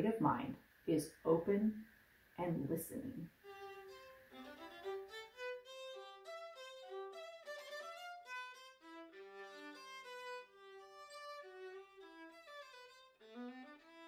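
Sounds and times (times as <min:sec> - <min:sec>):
solo violin melody: 0:03.4 - 0:14.0.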